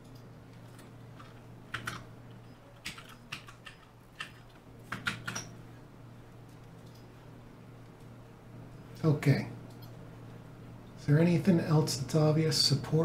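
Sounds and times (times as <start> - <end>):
keyboard typing: 0.0 - 5.6.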